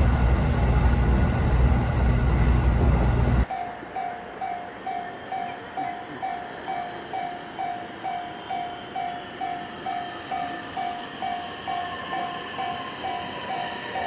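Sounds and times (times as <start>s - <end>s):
faint electric train approaching: 0.0s - 14.0s
level crossing alarm ringing: 3.4s - 14.0s.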